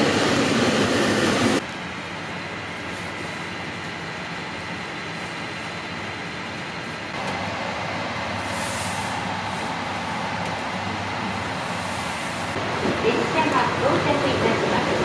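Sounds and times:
train rumbling: 6.7 - 15.0.

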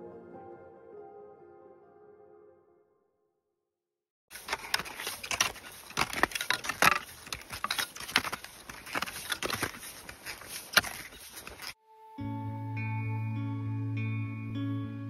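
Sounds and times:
crunching and scuffing in snow: 4.3 - 11.8.

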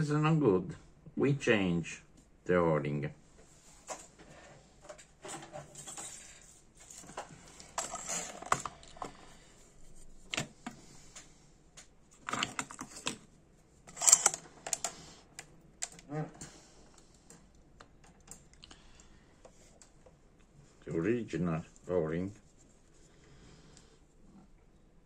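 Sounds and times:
metal parts rattling in plastic box: 5.2 - 9.1, 13.9 - 14.9.

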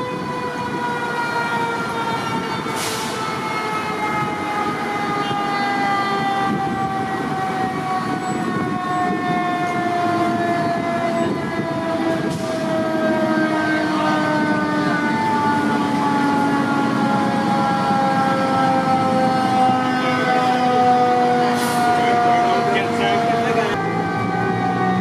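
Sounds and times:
lower siren tone: 0.0 - 25.0
mechanical siren winding down: 0.0 - 25.0.

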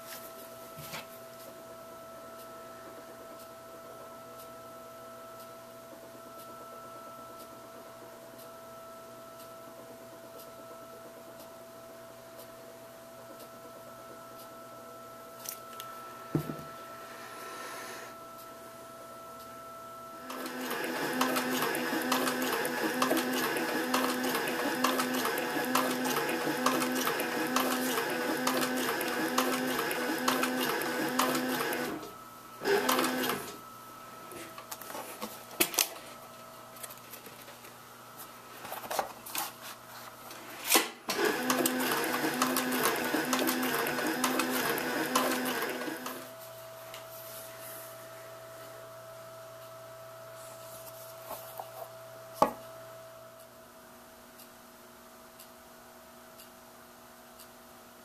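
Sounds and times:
sewing machine stitching leather: 20.2 - 33.6, 41.1 - 46.3.

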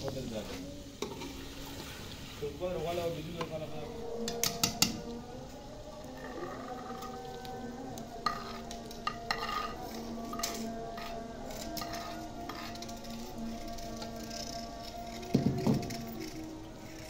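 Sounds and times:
meat and onions sizzling: 0.0 - 13.8
metal ladle scraping clay bowl: 8.2 - 17.0.

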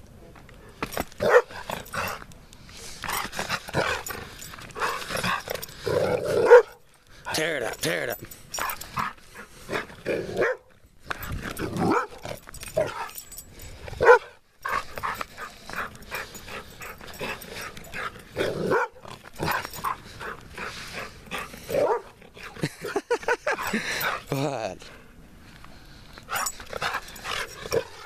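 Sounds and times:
dog barking: 1.2 - 1.5, 6.4 - 6.8, 10.4 - 10.6, 11.9 - 12.2, 14.0 - 14.3, 18.7 - 19.0, 21.8 - 22.1.

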